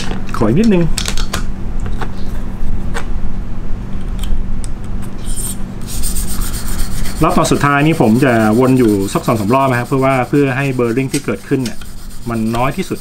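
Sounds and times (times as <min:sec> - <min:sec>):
steady low hum: 0:00.0 - 0:13.0
stone rasping along knife edge: 0:05.4 - 0:13.0.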